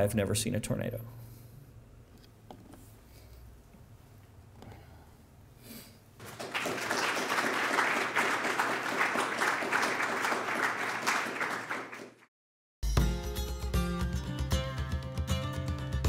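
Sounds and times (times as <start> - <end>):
audience applauding: 6.2 - 12.3.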